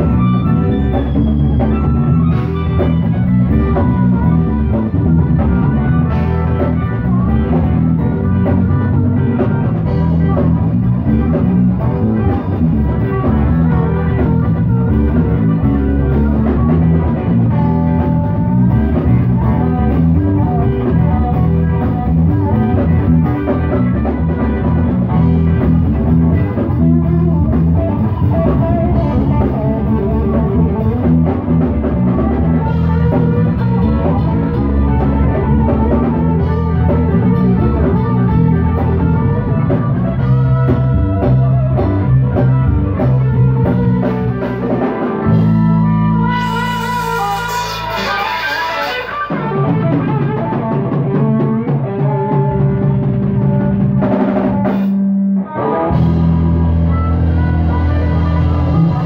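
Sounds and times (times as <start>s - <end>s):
live rock band playing: 0.0s - 59.0s
harmonica: 45.3s - 50.5s.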